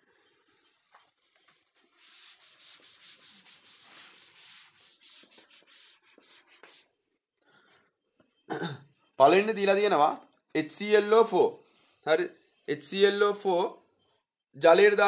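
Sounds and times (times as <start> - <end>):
duster scrubbing chalkboard: 1.0 - 6.9.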